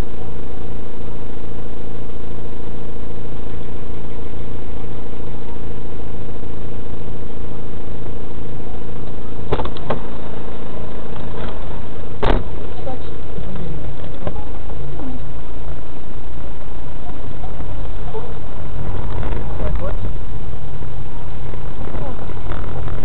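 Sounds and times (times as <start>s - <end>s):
car engine idling: 0.0s - 23.0s
sharp knocks: 9.5s - 10.0s.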